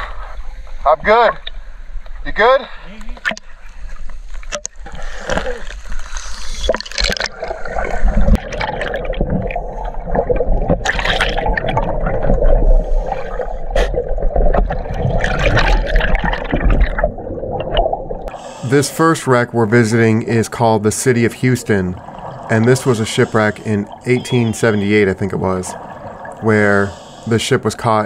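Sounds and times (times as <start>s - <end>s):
water splashing: 3.2s - 28.0s
regulator bubbles underwater: 5.7s - 27.3s.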